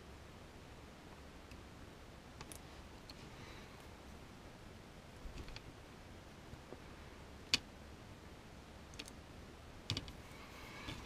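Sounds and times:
small plastic clicks and taps: 0:09.9 - 0:10.2.

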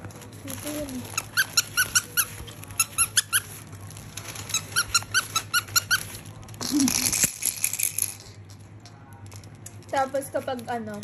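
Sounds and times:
toy squeaker squeaking: 0:01.1 - 0:03.6, 0:04.4 - 0:06.2.

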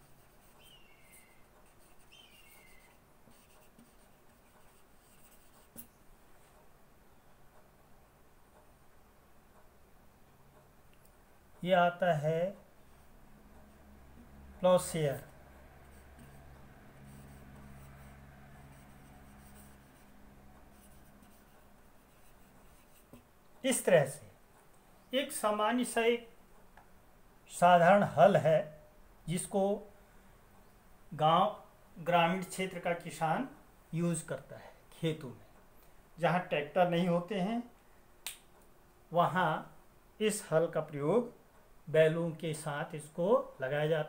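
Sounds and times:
marker pen scratching on paper: 0:00.0 - 0:05.9, 0:14.8 - 0:23.9
low electrical hum: 0:00.0 - 0:44.0
marker pen squeak: 0:00.1 - 0:03.9.

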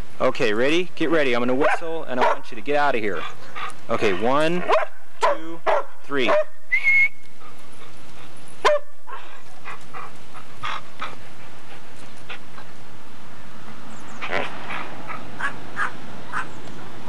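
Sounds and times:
small dogs barking: 0:01.6 - 0:02.5, 0:03.2 - 0:06.6, 0:08.6 - 0:11.2, 0:14.2 - 0:16.6.

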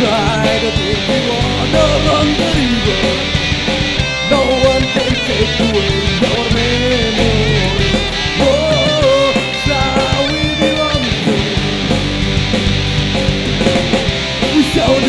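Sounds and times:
person singing: 0:00.0 - 0:03.4, 0:04.2 - 0:11.8, 0:14.4 - 0:15.0
rock band playing: 0:00.0 - 0:15.0.

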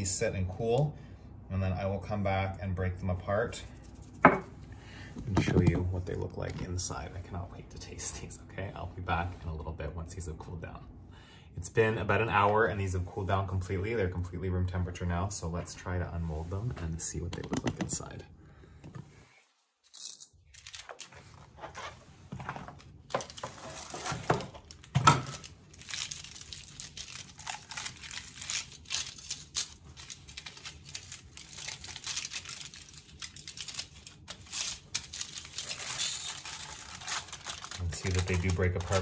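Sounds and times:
aluminium foil crinkling: 0:19.8 - 0:21.9, 0:22.7 - 0:39.0.

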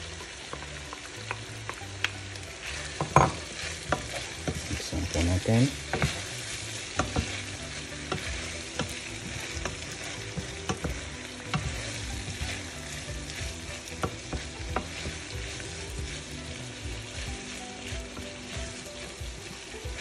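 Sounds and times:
food sizzling in frying pan: 0:00.0 - 0:20.0
spatula scraping and tapping pan: 0:00.4 - 0:20.0.

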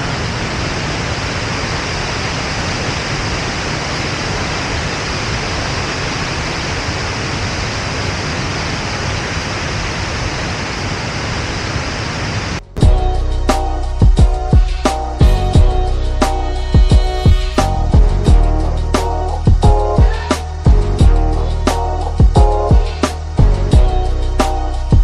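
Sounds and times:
waterfall pouring into a pool: 0:00.0 - 0:12.4.

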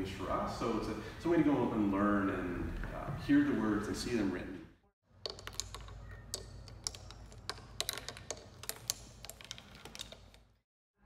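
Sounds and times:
stones clicking on turntable: 0:05.2 - 0:10.6.

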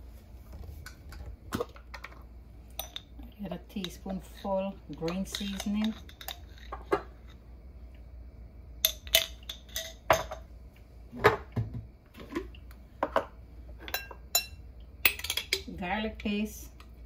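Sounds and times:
dishes clinking on countertop: 0:08.9 - 0:10.5.

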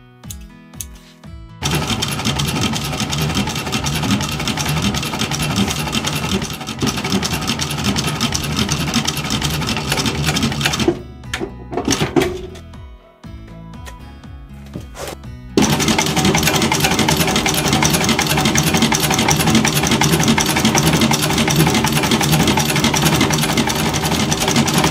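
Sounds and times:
sewing machine stitching leather: 0:01.6 - 0:11.0, 0:15.0 - 0:24.9.

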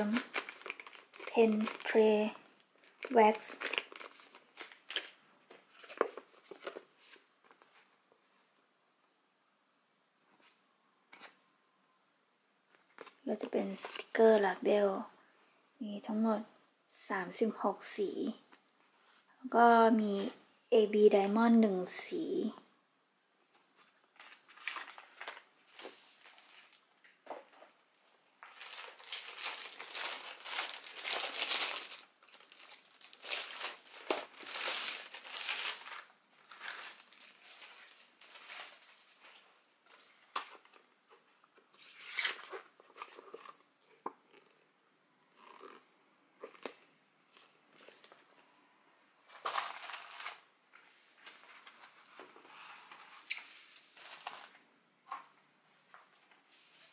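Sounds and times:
paper and plastic rustling: 0:00.0 - 0:08.0, 0:23.5 - 0:27.8, 0:28.4 - 0:40.9, 0:49.3 - 0:54.6.

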